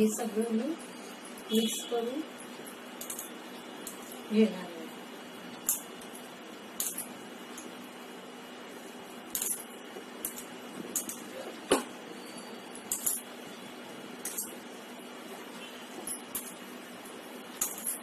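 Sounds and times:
metallic clinks against pot: 12.9s - 13.3s.

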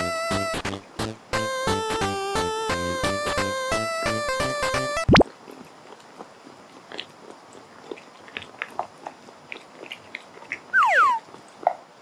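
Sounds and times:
cat chewing and lapping: 5.2s - 12.0s
loud falling whistle-like tone: 10.8s - 11.2s.

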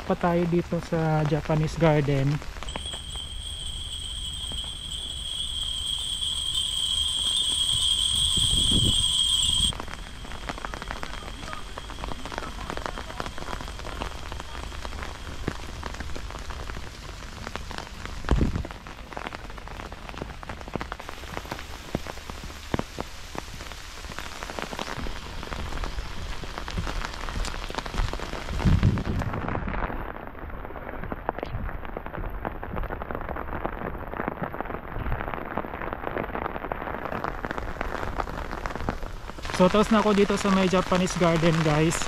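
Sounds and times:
rain on umbrella: 0.0s - 42.0s
high ringing tone: 2.6s - 15.3s.

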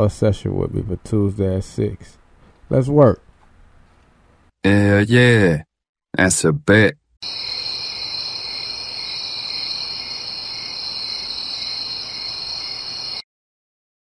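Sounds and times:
crickets chirring: 7.2s - 13.2s.

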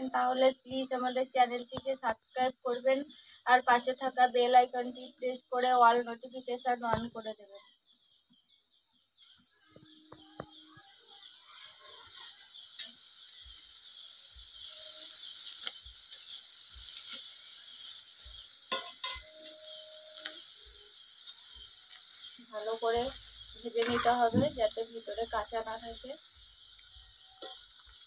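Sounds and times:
food deep-frying in oil: 0.0s - 8.4s, 9.0s - 28.0s
metal spoon clinking on pan: 12.1s - 13.1s, 18.7s - 19.8s, 27.4s - 27.9s.

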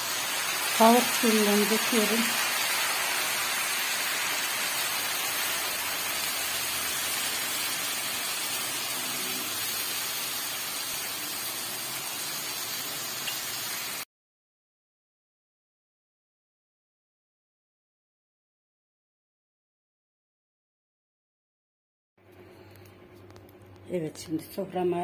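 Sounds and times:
broth sizzling and bubbling: 0.0s - 14.0s.

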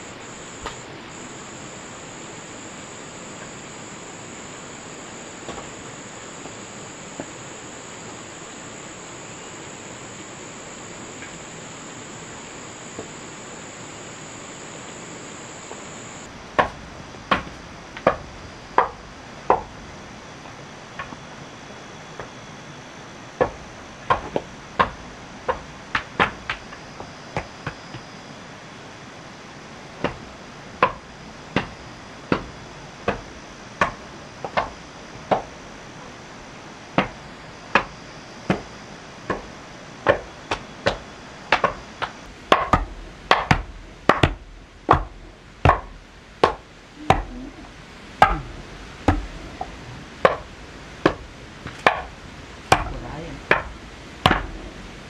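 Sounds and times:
hand tool striking wood: 31.6s - 32.5s, 33.8s - 34.7s, 35.3s - 35.5s, 40.1s - 47.3s, 49.1s - 52.1s, 52.7s - 54.6s.

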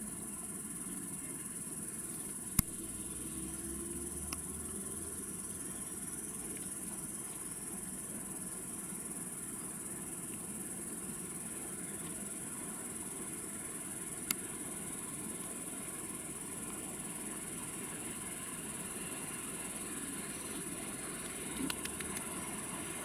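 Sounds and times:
insects chirring: 0.0s - 23.0s
sharp click: 2.6s - 2.9s.

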